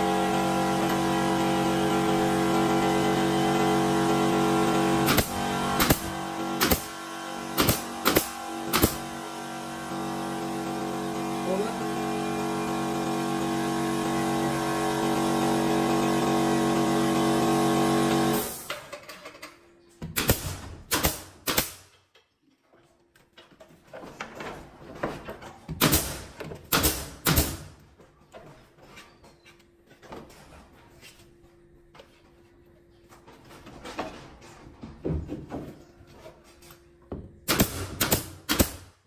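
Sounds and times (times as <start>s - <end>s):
air compressor humming: 0.0s - 18.8s
nail gun shots: 5.0s - 9.1s, 20.1s - 21.9s, 25.8s - 27.7s, 37.4s - 39.0s.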